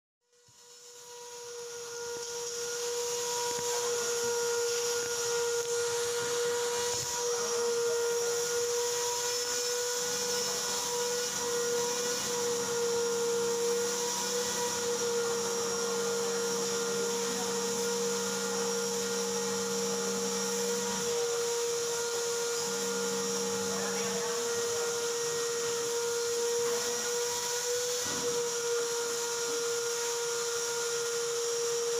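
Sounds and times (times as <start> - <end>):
steady machine whine: 0.3 - 31.9.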